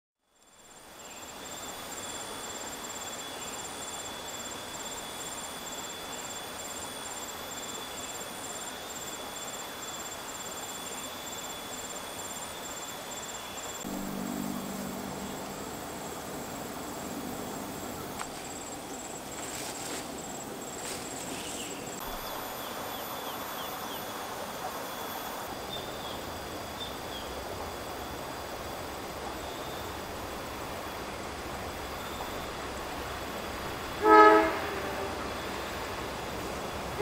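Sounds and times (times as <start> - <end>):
insects chirping and trilling: 0.3 - 37.0
low steady hum: 13.8 - 37.0.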